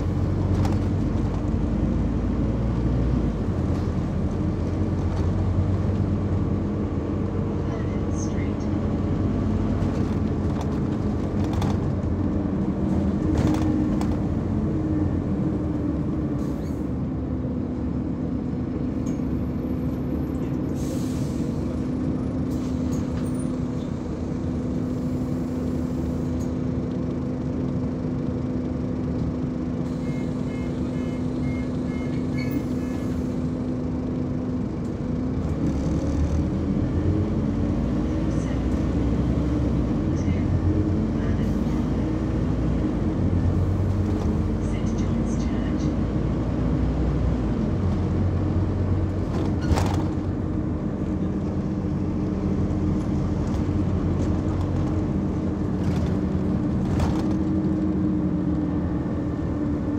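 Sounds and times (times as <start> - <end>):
bus engine rumble: 0.0 - 59.9
air brake hiss: 20.8 - 21.6.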